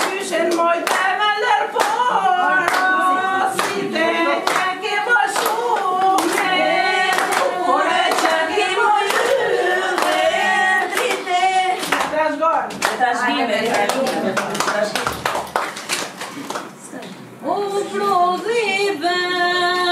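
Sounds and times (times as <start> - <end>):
hand claps: 0.0 - 1.1, 1.8 - 2.9, 3.6 - 3.8, 4.4 - 4.7, 5.3 - 6.5, 7.1 - 8.4, 9.0 - 10.2, 10.8 - 13.0, 13.7 - 16.7
group of women singing: 0.0 - 14.4, 17.4 - 19.9.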